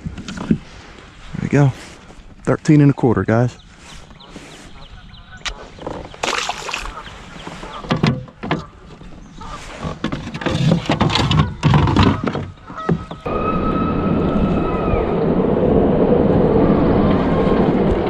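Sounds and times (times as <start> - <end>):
knocks and thunks on kayak: 5.8 - 13.3.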